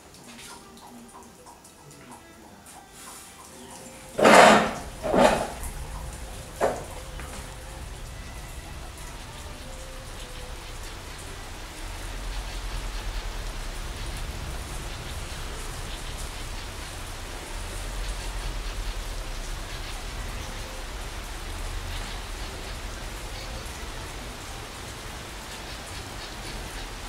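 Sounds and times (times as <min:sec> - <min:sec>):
rain drops ticking: 0:00.0 - 0:27.0
low rumble: 0:04.8 - 0:24.5.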